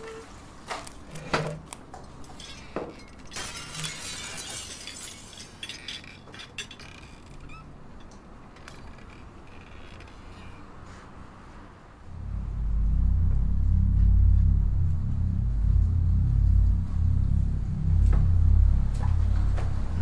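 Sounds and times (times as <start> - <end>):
small hard objects clinking: 2.3 - 6.9.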